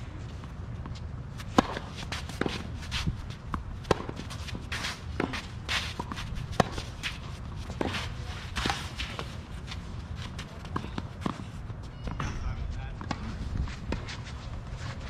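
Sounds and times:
footsteps and shoe scuffs on court: 0.1 - 15.0
racket hitting tennis ball: 1.4 - 9.9.

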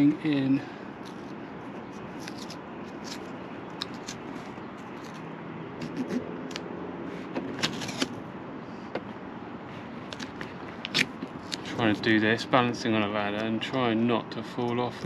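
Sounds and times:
steady background hiss: 0.0 - 15.0
tape crinkling and clicking: 2.0 - 5.2.

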